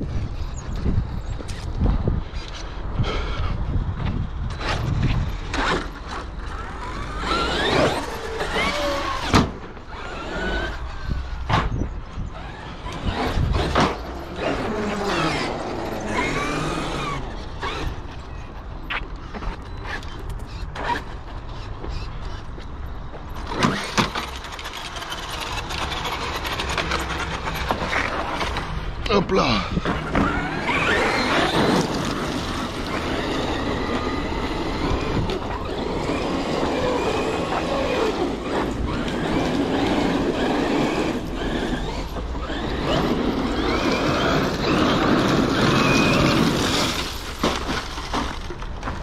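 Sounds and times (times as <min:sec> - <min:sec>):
electric motor whining: 0:06.4 - 0:11.4, 0:12.3 - 0:18.1, 0:29.7 - 0:47.2.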